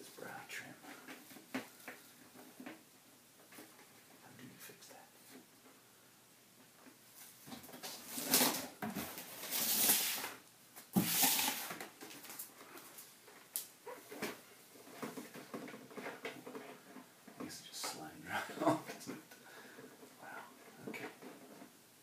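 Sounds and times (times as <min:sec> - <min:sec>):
bubble wrap and cardboard rustling: 0:07.1 - 0:17.0.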